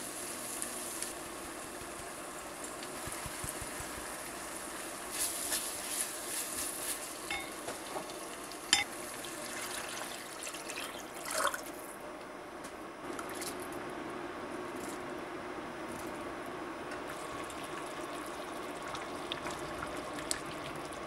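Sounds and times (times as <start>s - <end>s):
water pouring into a pot: 8.1s - 11.7s.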